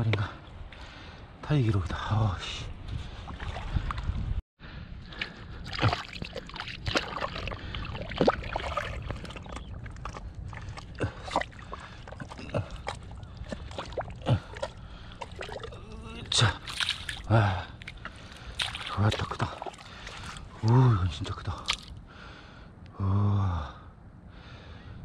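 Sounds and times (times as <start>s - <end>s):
boots squelching in mud: 5.2s - 20.7s, 21.5s - 22.0s
small pops and clicks from mud: 8.2s - 15.7s, 16.6s - 20.4s, 21.5s - 22.0s.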